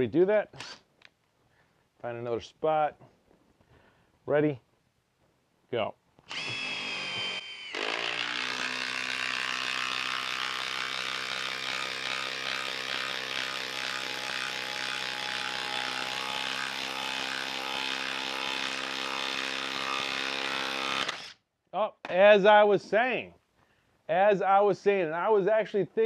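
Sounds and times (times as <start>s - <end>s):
impact driver hammering: 7.2s - 21.2s.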